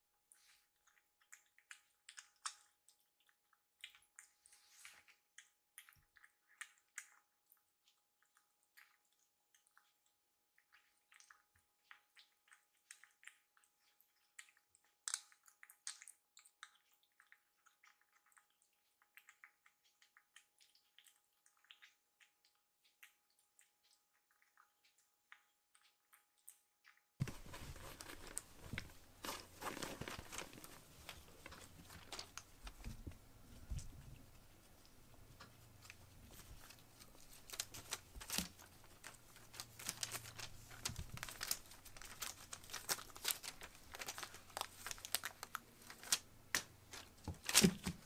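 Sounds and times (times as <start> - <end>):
kittens crunching dry food: 0.4 - 48.0
rustling and scuffing: 27.2 - 34.4.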